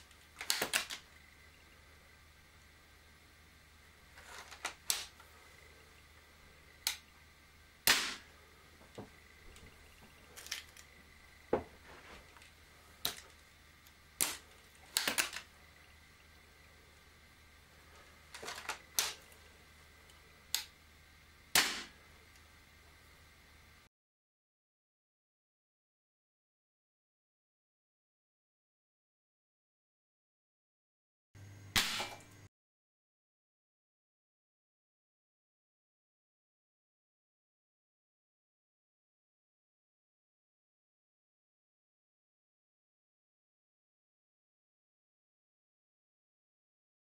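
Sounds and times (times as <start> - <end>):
air rifle metallic clicks: 14.2 - 15.4.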